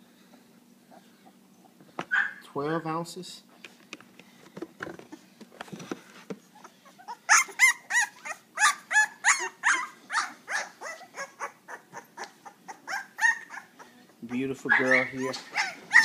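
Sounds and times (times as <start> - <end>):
puppy whimpering and yelping: 6.5 - 16.0.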